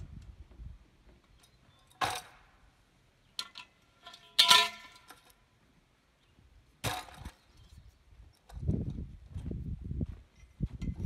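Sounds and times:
knocks and metallic clanks: 0:01.4 - 0:02.6, 0:03.4 - 0:05.4, 0:06.8 - 0:07.5.

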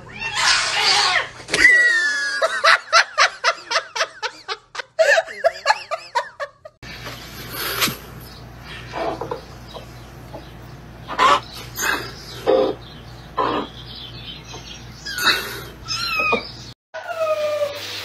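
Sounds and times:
cat yowl: 0:00.0 - 0:02.2, 0:15.1 - 0:17.8
person laughing hard: 0:01.7 - 0:06.8.

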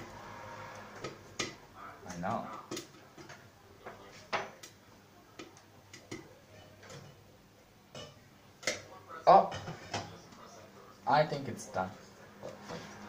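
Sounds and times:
popcorn popping: 0:04.3 - 0:07.2.

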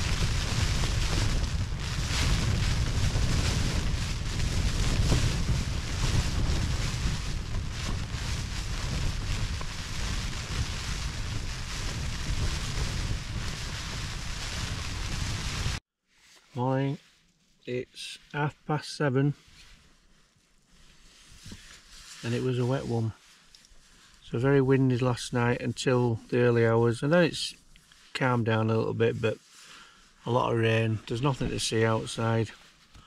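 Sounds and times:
strong wind gusting on microphone: 0:00.0 - 0:15.8.

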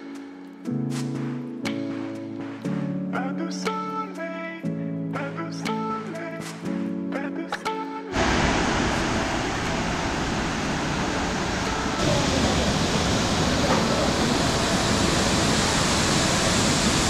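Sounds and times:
waterfall rushing: 0:08.1 - 0:17.0.

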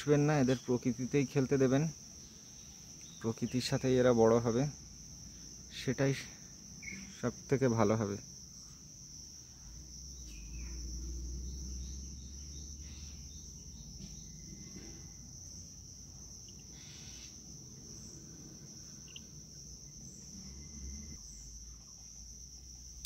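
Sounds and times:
high-pitched insect drone: 0:00.0 - 0:23.0
bird chirps: 0:06.8 - 0:07.1, 0:10.2 - 0:10.9, 0:19.0 - 0:19.3.

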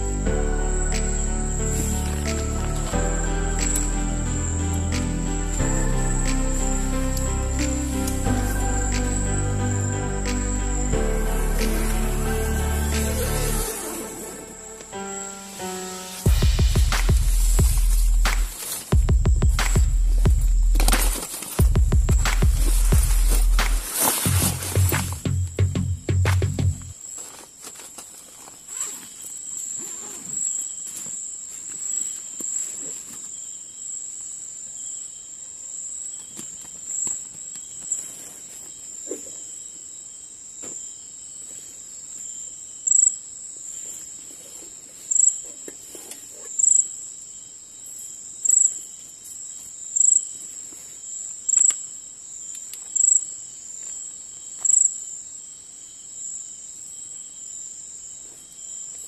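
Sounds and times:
rustling of nylon backpack: 0:20.8 - 0:25.2, 0:27.0 - 0:33.6
loud insect chirp: 0:28.4 - 0:59.0.

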